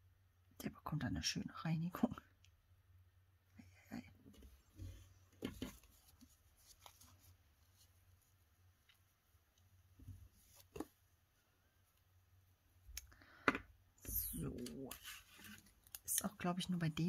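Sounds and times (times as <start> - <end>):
paper rustling: 4.8 - 8.4, 14.6 - 16.0.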